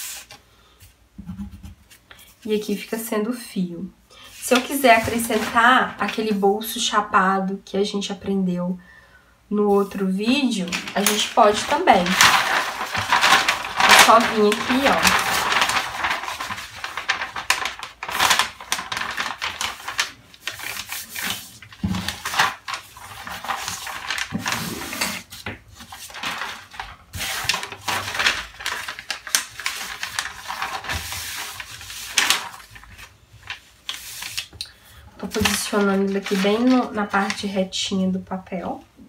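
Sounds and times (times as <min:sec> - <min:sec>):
paper rustling and crinkling: 0:04.2 - 0:06.8, 0:09.7 - 0:37.8.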